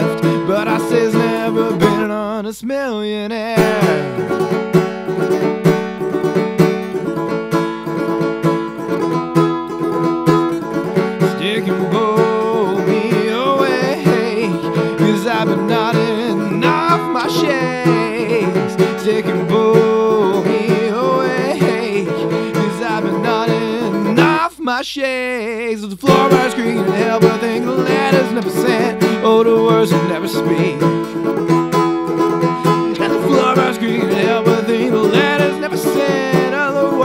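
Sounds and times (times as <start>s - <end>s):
plucked string accompaniment: 0.0s - 2.3s, 3.4s - 24.5s, 26.0s - 37.0s
person singing wavering melody: 10.6s - 24.5s, 26.0s - 31.4s, 32.2s - 37.0s.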